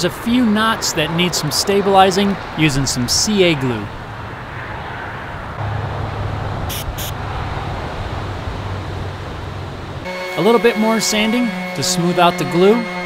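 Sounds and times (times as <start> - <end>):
aerosol can spraying: 6.7 - 7.1
steady low hum: 10.0 - 13.0.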